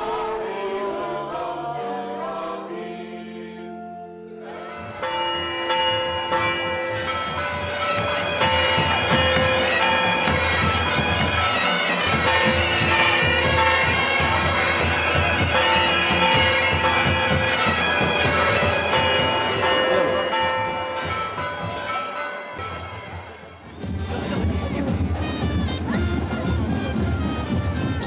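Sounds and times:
bagpipe band playing: 6.3s - 28.0s.

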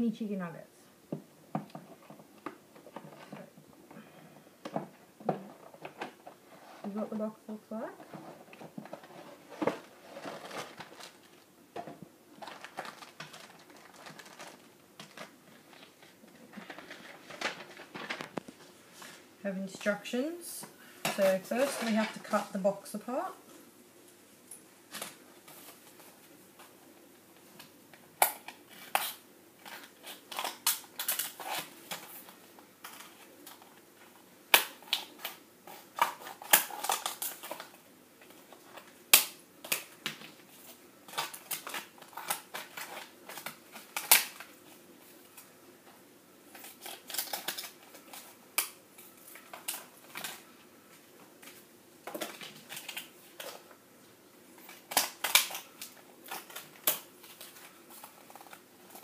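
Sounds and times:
scissors cutting plastic: 28.2s - 32.2s, 34.5s - 37.7s, 41.1s - 44.5s, 46.5s - 50.4s, 54.6s - 59.0s.

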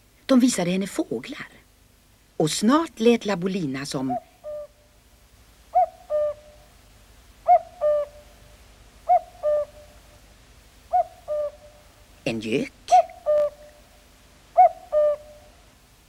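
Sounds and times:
cuckoo calling: 4.0s - 4.9s, 5.7s - 6.7s, 7.4s - 10.2s, 10.9s - 12.1s, 12.9s - 15.7s.

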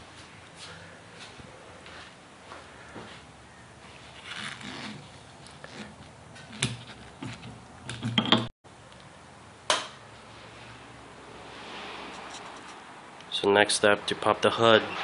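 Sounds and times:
handling clicks and knocks: 6.4s - 8.5s.

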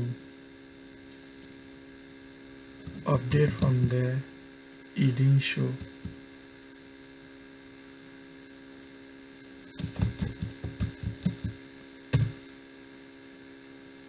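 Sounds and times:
electrical mains hum: 0.0s - 14.0s
keyboard typing: 9.7s - 11.6s.

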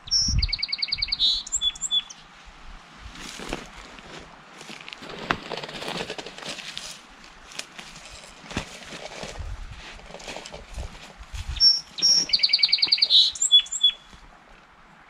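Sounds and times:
songbird singing: 0.0s - 2.3s, 11.5s - 14.3s
footsteps through brush: 3.0s - 13.3s.

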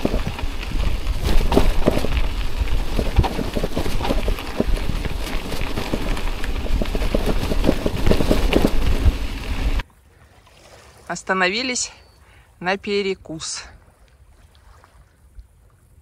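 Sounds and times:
bicycle tyres crunching over stones: 0.0s - 9.8s
bike rattling: 0.0s - 9.8s.

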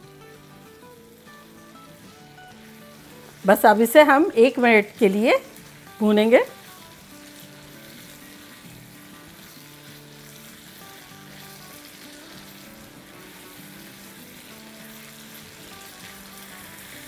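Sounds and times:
food sizzling in hot oil: 0.0s - 17.0s
soft background music: 0.0s - 17.0s
spatula stirring in wok: 5.5s - 17.0s.

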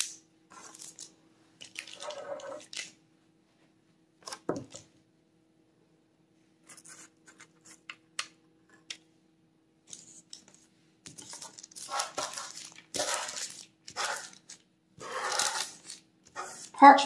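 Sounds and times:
scraping candy across parchment: 0.5s - 2.9s, 11.1s - 16.8s.

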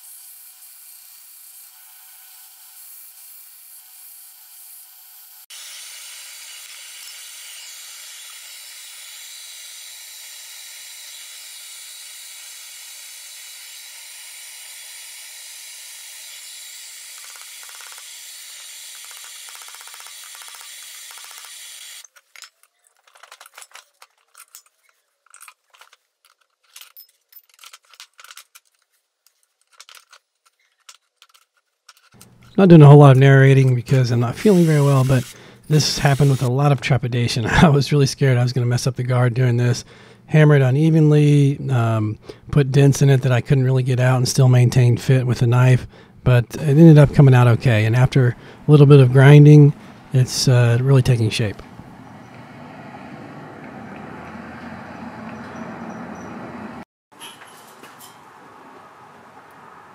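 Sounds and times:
belt grinder grinding metal: 0.0s - 22.2s, 33.6s - 36.5s.

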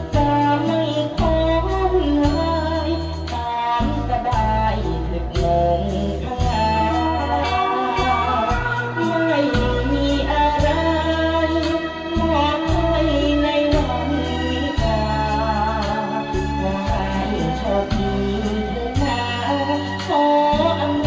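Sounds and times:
backing music with bass and drums: 0.0s - 21.0s
young man singing into a microphone: 0.0s - 21.0s.

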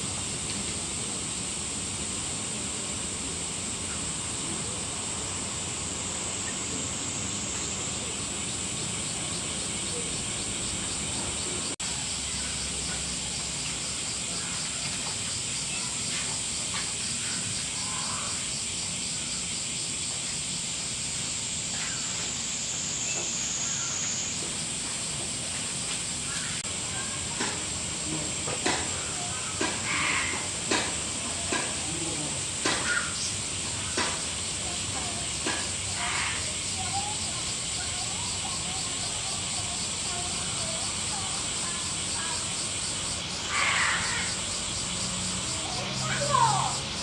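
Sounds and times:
cicadas chorus: 0.0s - 47.0s
fast pulsing cicada call: 0.0s - 47.0s.

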